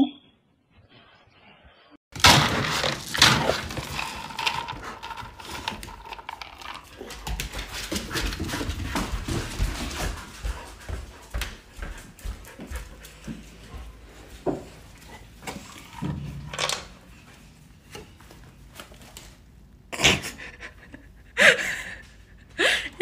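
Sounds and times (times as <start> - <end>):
dog claws clicking on wood floor: 2.2 - 10.6.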